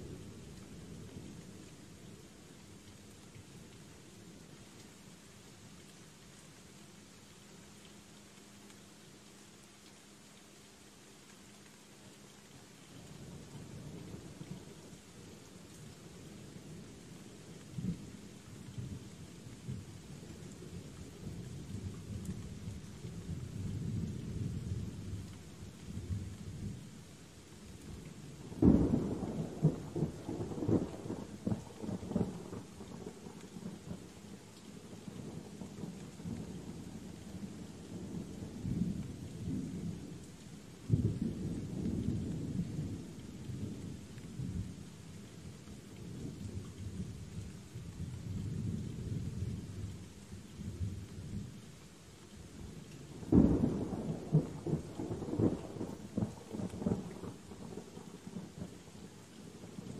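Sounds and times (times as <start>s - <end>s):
steady rain: 0.0s - 59.9s
rolling thunder: 53.2s - 57.8s.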